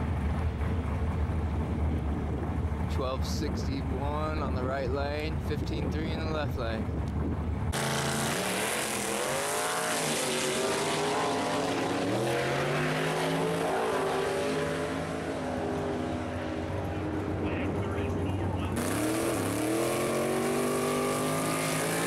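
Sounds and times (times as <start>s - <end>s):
race car engines revving: 0.0s - 22.0s.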